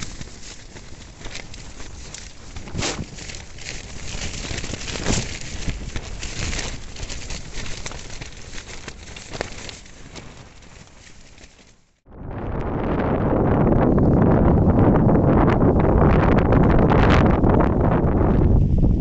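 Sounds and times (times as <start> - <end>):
tent fabric flapping in wind: 0.0 - 19.0
wind buffeting microphone: 0.0 - 19.0.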